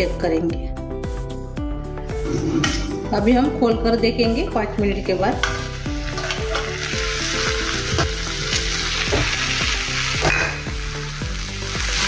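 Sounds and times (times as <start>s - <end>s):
instrumental background music: 0.0s - 12.0s
food sizzling in a frying pan: 5.0s - 12.0s.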